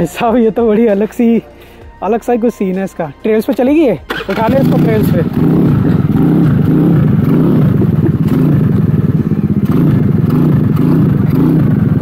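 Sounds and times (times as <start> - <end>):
small engine revving: 4.1 - 12.0.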